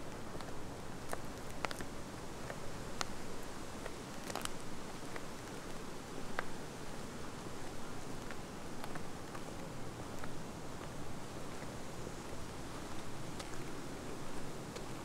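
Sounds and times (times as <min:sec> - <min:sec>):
steady low hiss: 0:00.0 - 0:15.0
footsteps on dry track: 0:07.6 - 0:15.0.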